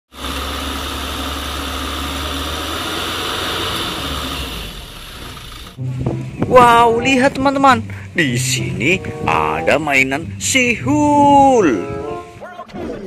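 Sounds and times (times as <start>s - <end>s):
hydraulic hoist: 0.1s - 5.8s
truck engine running: 0.1s - 12.4s.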